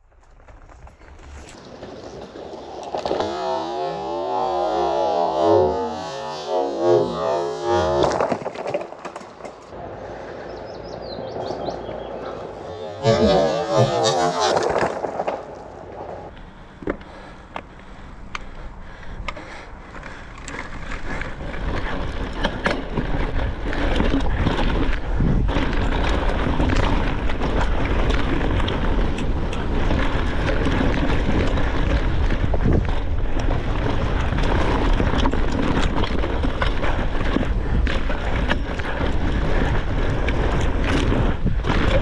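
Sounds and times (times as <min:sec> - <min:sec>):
bike tyres rumbling: 0:00.0 - 0:42.0
bike clicks and knocks: 0:07.8 - 0:09.8, 0:14.3 - 0:42.0
wind rushing over microphone: 0:20.8 - 0:42.0.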